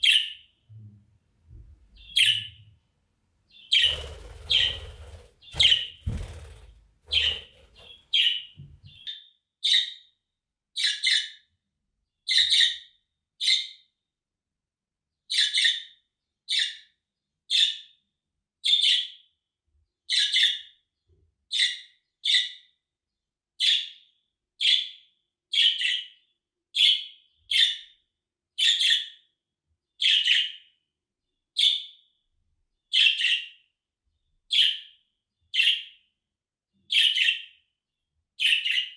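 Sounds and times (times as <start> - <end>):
budgerigar contact calls: 7.1 - 8.4.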